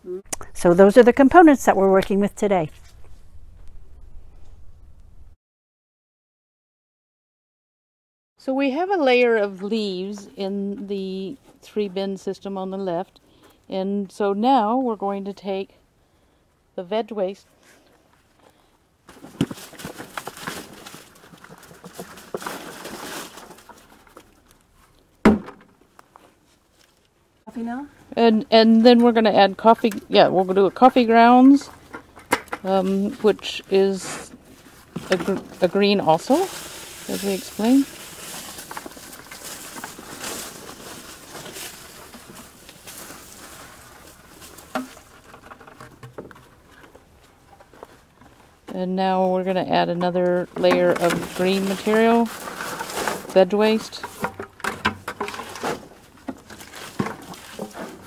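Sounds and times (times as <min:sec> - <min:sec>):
vegetable scraps tumbling from bucket: 0:19.1 - 0:24.5, 0:31.4 - 0:47.0, 0:50.5 - 0:58.0.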